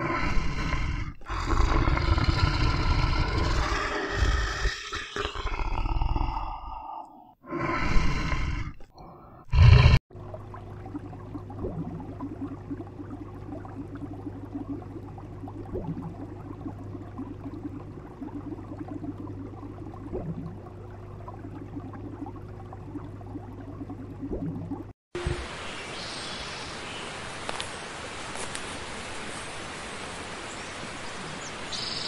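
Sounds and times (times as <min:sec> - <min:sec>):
water bubbling and churning: 0:00.0 - 0:06.9, 0:07.5 - 0:25.0
electrical hum: 0:07.6 - 0:25.8.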